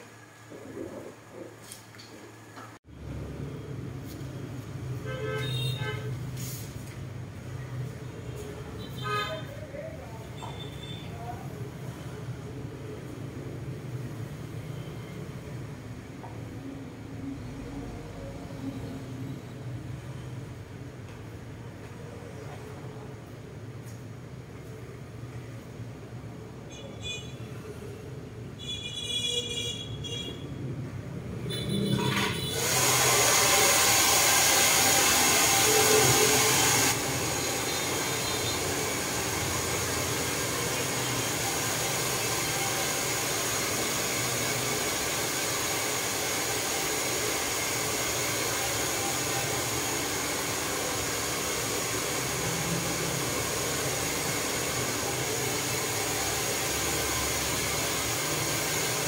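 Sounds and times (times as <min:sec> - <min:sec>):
hair dryer blowing: 0:32.0 - 0:59.0.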